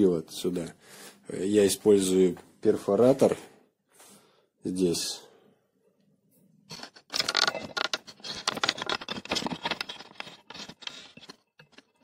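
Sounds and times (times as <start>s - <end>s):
tools and metal parts clinking: 6.7s - 12.0s.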